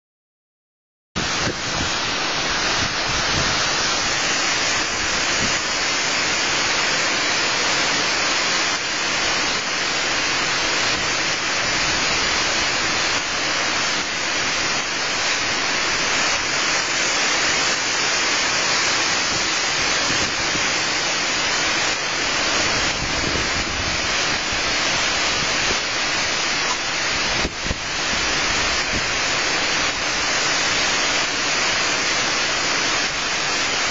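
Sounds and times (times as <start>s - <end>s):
wind gusts buffeting microphone: 1.2s - 4.2s, 22.6s - 25.8s, 27.0s - 29.2s
wind blowing through tree: 1.2s - 33.9s.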